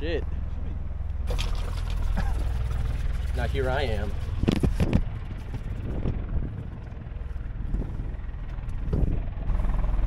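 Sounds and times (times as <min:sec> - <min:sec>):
golf cart rumbling over grass: 0:01.2 - 0:06.6.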